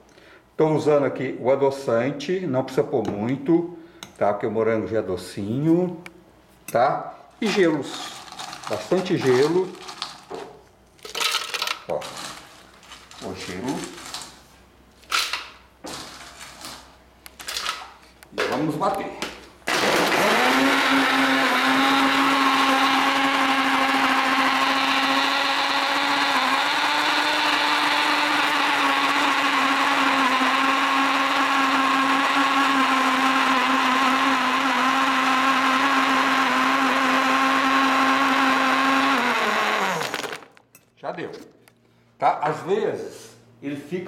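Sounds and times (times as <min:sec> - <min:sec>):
blender running with ice: 0:07.5 - 0:10.2, 0:19.7 - 0:40.6.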